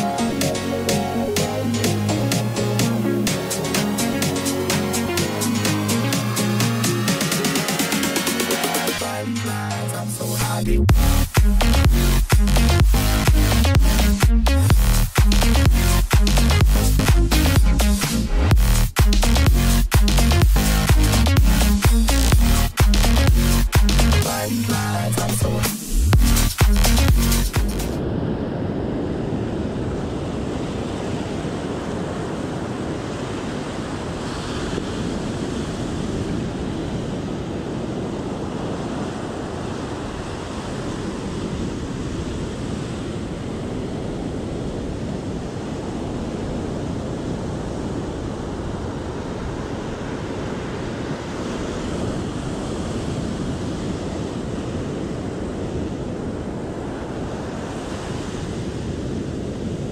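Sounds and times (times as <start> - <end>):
ocean surf breaking: 0.0 - 10.6, 27.5 - 59.9.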